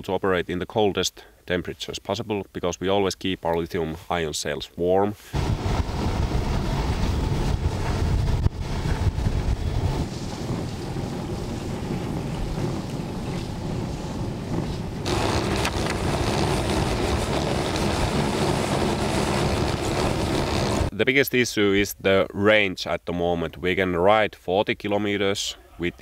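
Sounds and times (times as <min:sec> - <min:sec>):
electric snowmobile running: 0:05.4 - 0:20.9
wind rushing over microphone: 0:05.4 - 0:20.9.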